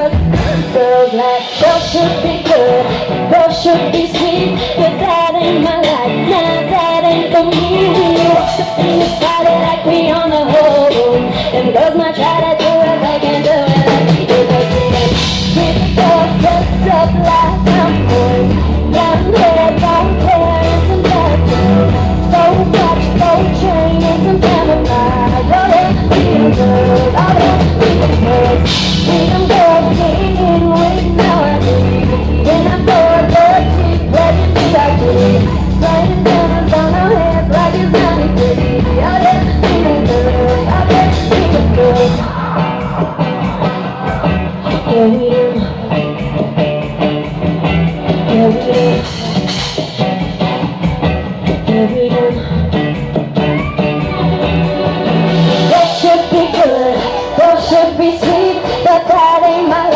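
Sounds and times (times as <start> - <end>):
woman singing into microphone: 0.0 - 47.0, 47.9 - 54.5, 55.6 - 59.9
drums and keyboards: 0.0 - 59.9
deep bass: 14.6 - 45.1.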